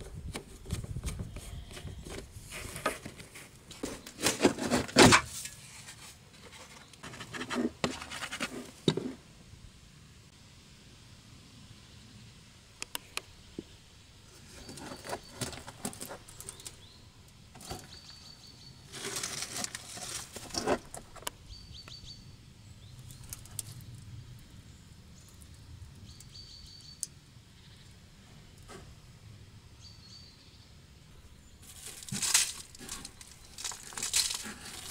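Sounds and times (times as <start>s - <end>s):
dirt being scraped by hand: 0.0s - 9.2s, 14.3s - 17.0s, 17.6s - 21.3s, 31.6s - 34.9s.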